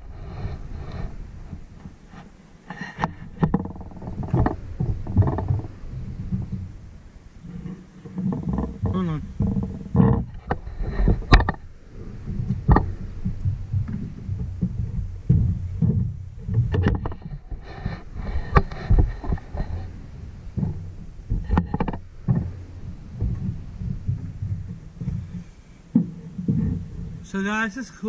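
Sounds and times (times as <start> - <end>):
camera handling knocks and scrapes: 12.3 - 20.0, 20.6 - 22.6.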